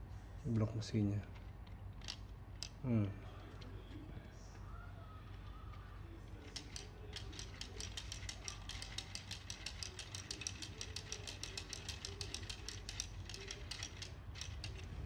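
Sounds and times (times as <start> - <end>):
plastic gears clicking rapidly: 1.4 - 2.8, 6.4 - 15.0.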